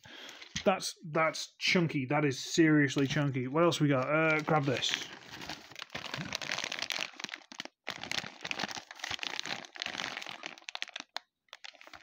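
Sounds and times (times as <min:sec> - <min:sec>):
plastic bag crinkling: 0:03.0 - 0:12.0.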